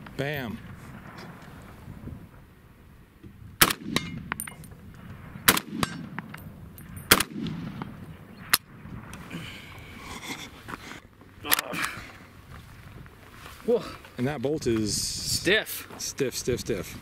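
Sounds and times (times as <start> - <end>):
rifle shots: 3.6 - 8.7
light metallic clinks: 4.0 - 4.8, 6.2 - 7.1.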